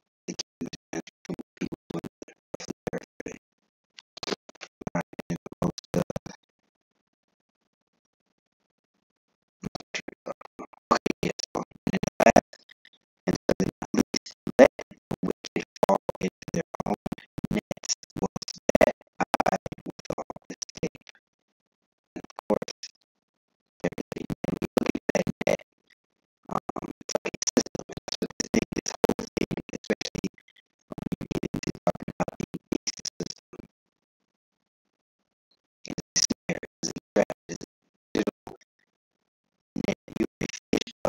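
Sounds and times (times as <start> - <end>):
music with rapid clicking: 0.3 - 3.4, 4.0 - 6.4, 9.6 - 21.2, 22.2 - 22.9, 23.8 - 25.6, 26.5 - 33.7, 35.9 - 38.6.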